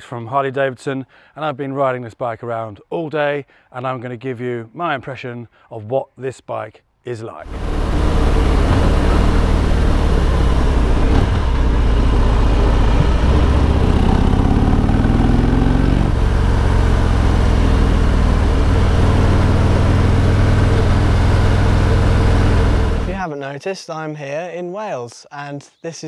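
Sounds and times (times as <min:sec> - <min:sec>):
motorcycle engine revving: 0:07.4 - 0:23.2.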